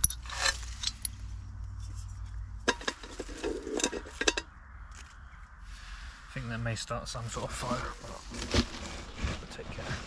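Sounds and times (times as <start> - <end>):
light metallic clinks and knocks: 0.0 - 4.5.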